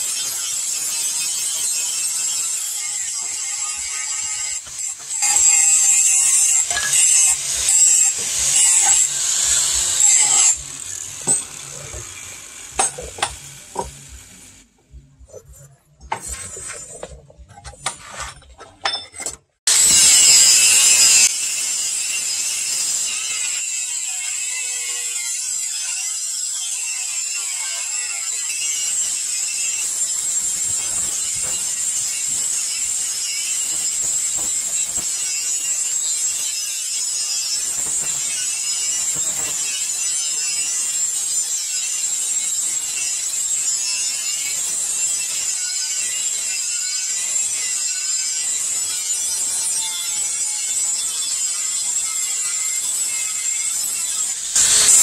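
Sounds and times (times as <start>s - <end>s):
angle grinder whining: 0.0s - 19.1s, 19.7s - 55.0s
scraping and clicking on blade: 15.3s - 19.4s.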